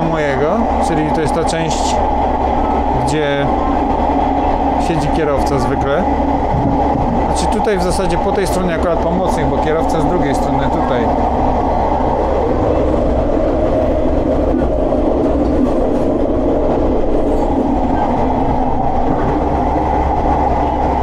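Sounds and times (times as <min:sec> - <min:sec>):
train wheels rumbling: 0:00.0 - 0:21.0.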